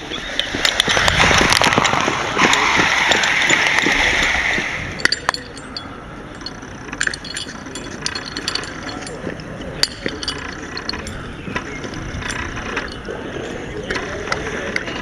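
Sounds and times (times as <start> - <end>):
hose couplings clicking: 0.3 - 4.3, 5.0 - 14.1.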